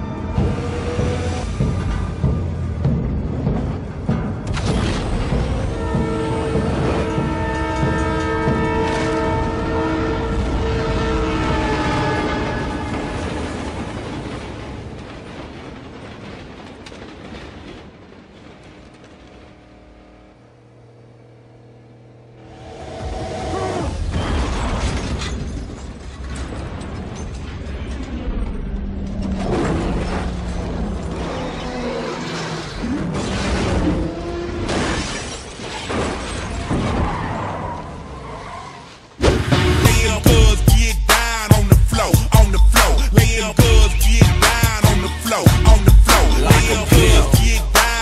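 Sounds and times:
train rushing past: 0.0s - 4.6s
debris scattering: 0.0s - 19.9s, 23.9s - 38.0s
glass shattering: 34.7s - 36.9s
background music: 39.2s - 48.0s.

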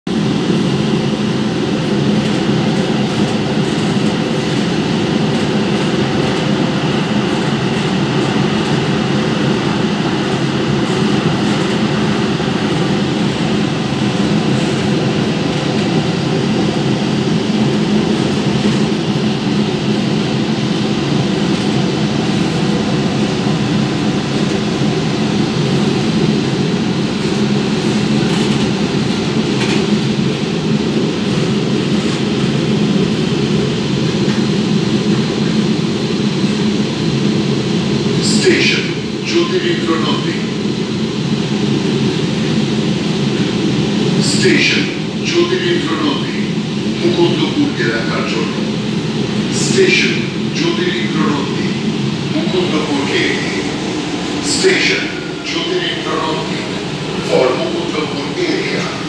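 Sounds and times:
train wheels running on track: 0.1s - 59.0s.

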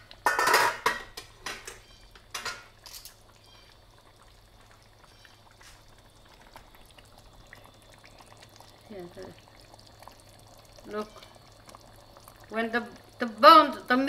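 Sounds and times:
utensils clattering on plate and pot: 0.2s - 3.2s.

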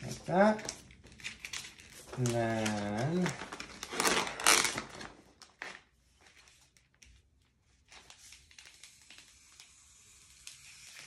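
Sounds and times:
plastic sleeve tapping and rustling: 0.0s - 7.2s.

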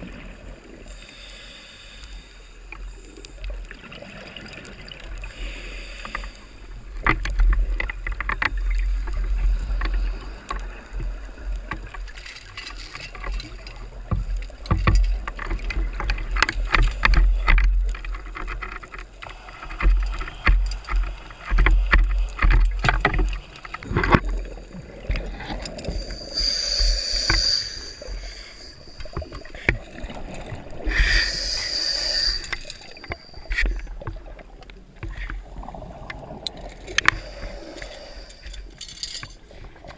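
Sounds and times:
low rumble of water: 0.0s - 39.9s
regulator bubbles hissing: 23.8s - 34.6s.

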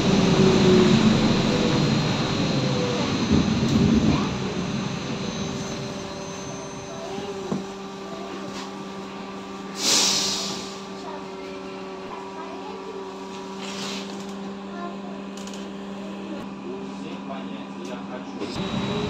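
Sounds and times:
low vehicle rumble: 0.0s - 8.3s
compressed air hiss: 9.7s - 10.8s.

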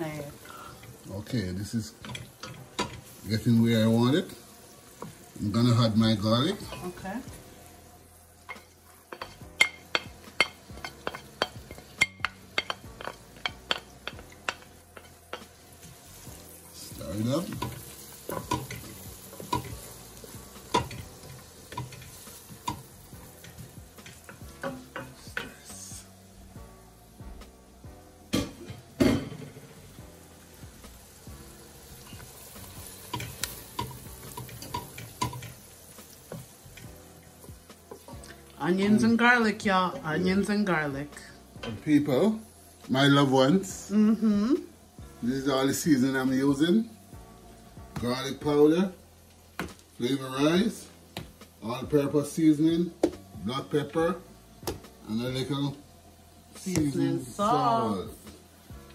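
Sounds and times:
faint sizzle: 0.0s - 58.9s
wooden spoon scraping and tapping: 8.4s - 16.0s.

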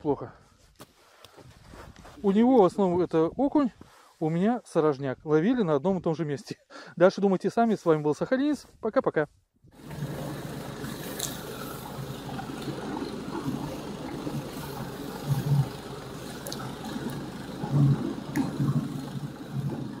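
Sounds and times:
motorized tow engine drone: 9.8s - 20.0s
sled runners hissing on snow: 9.8s - 20.0s.

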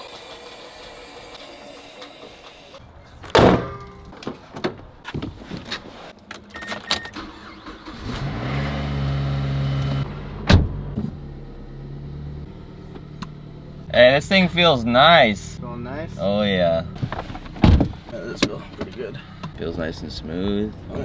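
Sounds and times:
car engine starting and idling: 0.0s - 3.0s, 6.1s - 21.0s
brief beep: 6.5s - 7.2s
car door shutting: 9.7s - 11.3s, 17.0s - 19.6s.

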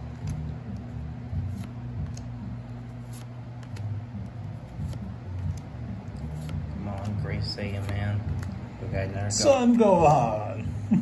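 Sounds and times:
trading cards flipped by hand: 0.0s - 8.7s
steady low hum: 0.0s - 11.0s.

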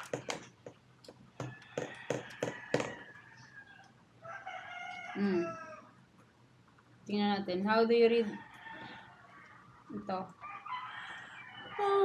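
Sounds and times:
rooster crowing: 1.4s - 6.0s, 8.3s - 9.7s, 10.4s - 12.0s.

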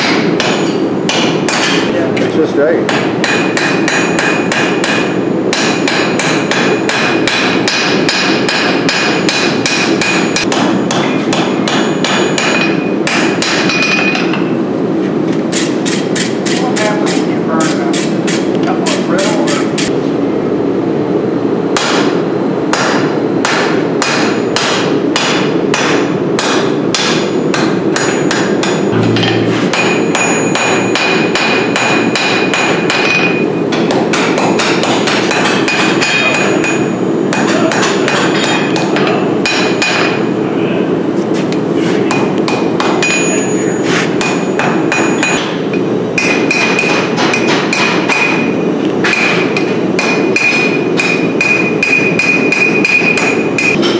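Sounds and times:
hammer striking steel on anvil: 0.0s - 1.9s, 2.9s - 14.6s, 21.8s - 40.3s, 42.1s - 53.9s
steady background noise: 0.0s - 53.9s.

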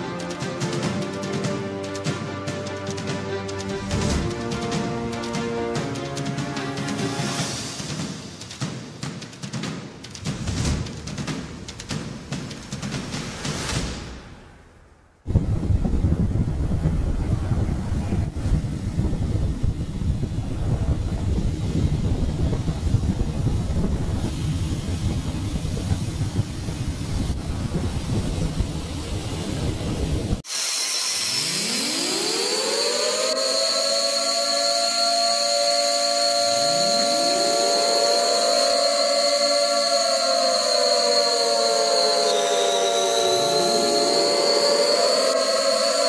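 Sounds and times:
jet engine turbine whine: 0.0s - 8.4s, 15.3s - 46.0s
high steady whistle: 3.6s - 8.3s, 19.0s - 46.0s
rocket motor rumble: 15.3s - 30.4s.

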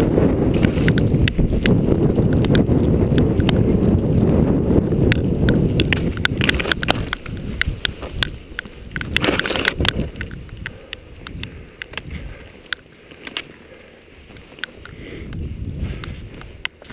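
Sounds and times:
skis sliding over snow: 0.1s - 16.9s
sharp clicks and knocks: 0.5s - 3.6s, 5.0s - 12.1s.

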